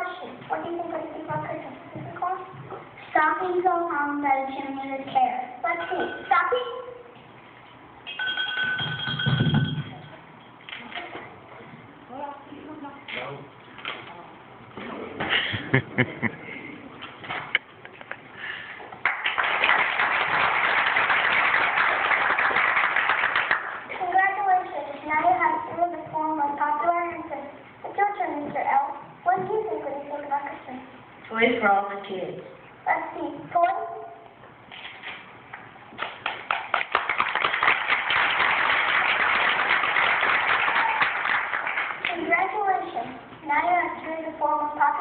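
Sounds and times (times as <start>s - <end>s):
audience applauding: 19.0s - 23.9s, 36.0s - 42.1s.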